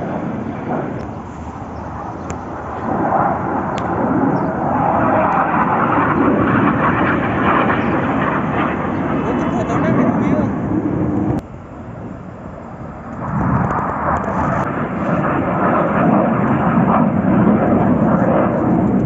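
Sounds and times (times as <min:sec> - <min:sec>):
jet engines flying past: 0:00.0 - 0:19.0.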